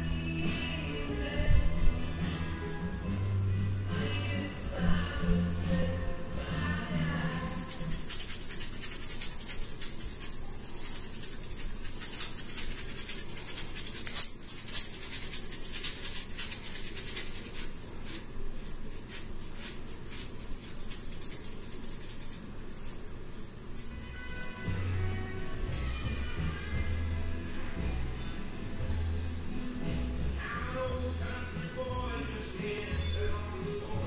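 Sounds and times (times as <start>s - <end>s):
paintbrush scrubbing on canvas: 2.0s - 24.8s.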